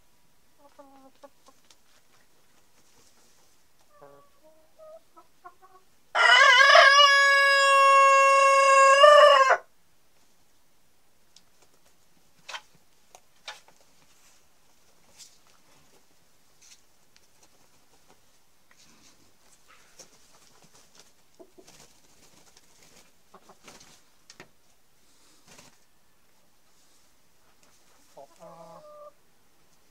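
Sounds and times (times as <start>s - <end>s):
soft clucks: 0.6s - 1.8s
rooster crowing: 6.2s - 9.7s.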